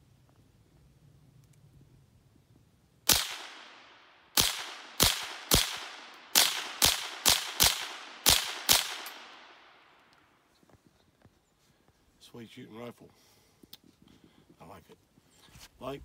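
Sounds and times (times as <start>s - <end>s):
rifle shots with echo: 3.1s - 10.1s.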